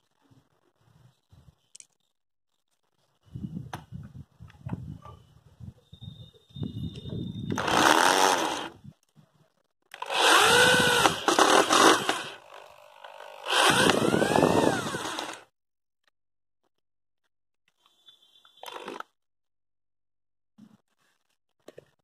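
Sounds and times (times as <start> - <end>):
electric drill driving screws: 7.5 - 8.8, 9.9 - 15.5.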